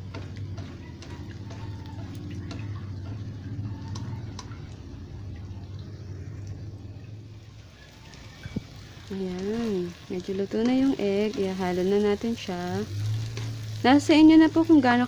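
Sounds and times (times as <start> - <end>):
steady low hum: 0.0 - 7.7
food sizzling in a wok: 7.3 - 15.0.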